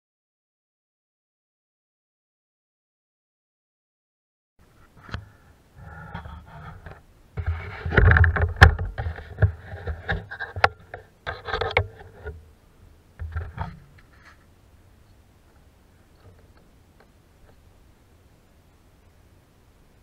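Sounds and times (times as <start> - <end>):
camera handling rubbing and scraping: 5.9 - 12.4, 13.2 - 14.5.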